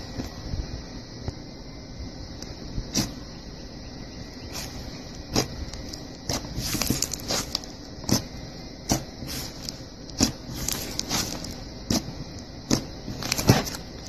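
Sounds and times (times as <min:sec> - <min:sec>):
slime squishing: 0:02.9 - 0:03.2, 0:04.5 - 0:14.0.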